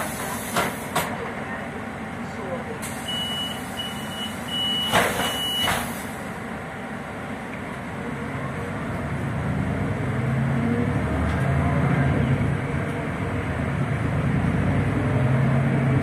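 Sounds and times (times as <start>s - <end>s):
bus engine accelerating: 0.0s - 16.0s
road noise: 0.0s - 16.0s.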